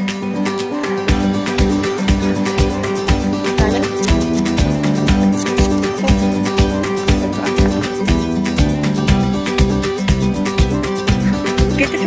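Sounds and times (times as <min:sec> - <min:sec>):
acoustic guitar playing: 0:00.0 - 0:12.0
steady beat: 0:01.1 - 0:12.0.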